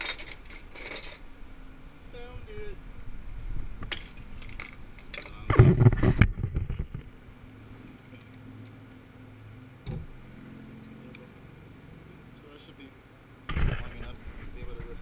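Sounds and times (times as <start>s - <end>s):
hand tools clattering: 0.0s - 1.2s.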